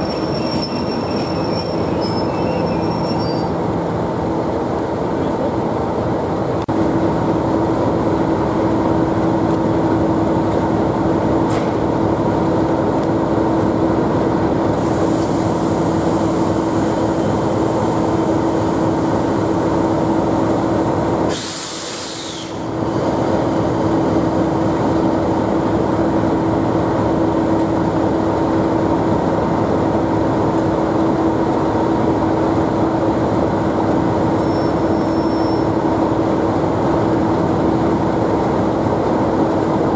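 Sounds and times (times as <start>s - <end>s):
diesel locomotive engine idling: 0.0s - 39.9s
air hissing: 21.3s - 22.7s.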